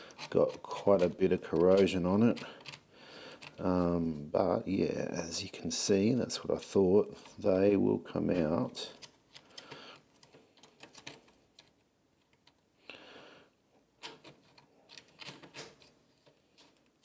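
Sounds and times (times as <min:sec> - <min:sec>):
screwdriver scraping and clicking: 0:00.0 - 0:03.6, 0:14.0 - 0:17.0.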